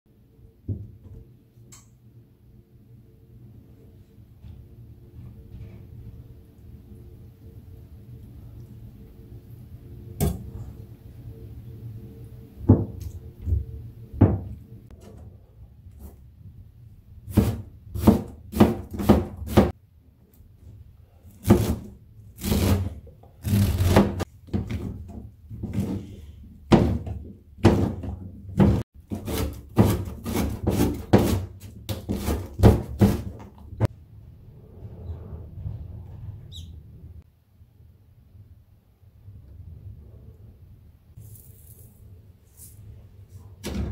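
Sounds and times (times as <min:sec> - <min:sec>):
knife chopping on plastic board: 0:17.3 - 0:19.7, 0:26.7 - 0:33.5.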